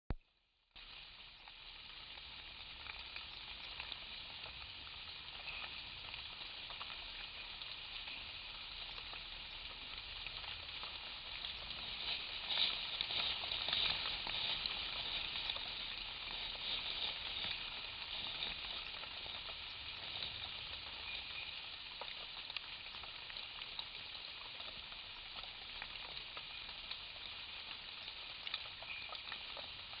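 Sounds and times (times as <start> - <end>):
faint steady tones: 0.1 - 30.0
insect chorus hissing: 5.3 - 22.2, 27.9 - 29.7.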